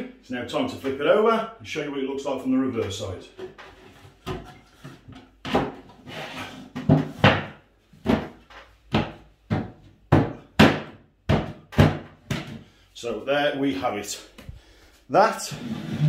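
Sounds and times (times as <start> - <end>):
wood scraping on floor: 3.4 - 7.4, 15.5 - 16.0.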